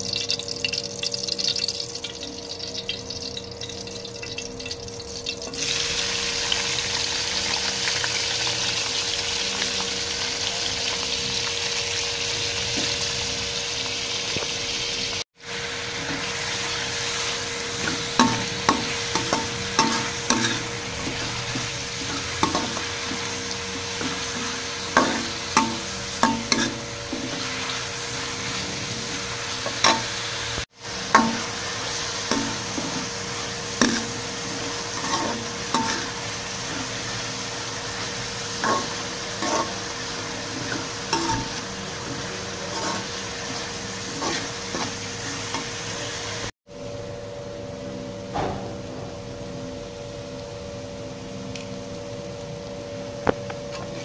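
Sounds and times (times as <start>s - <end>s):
onions sizzling in hot oil: 0.0s - 46.6s
spoon scraping metal pan: 17.8s - 27.8s, 33.8s - 37.1s, 38.6s - 45.7s.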